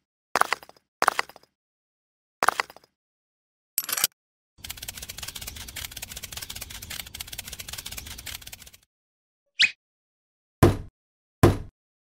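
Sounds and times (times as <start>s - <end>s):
small motor rattling: 4.6s - 8.8s.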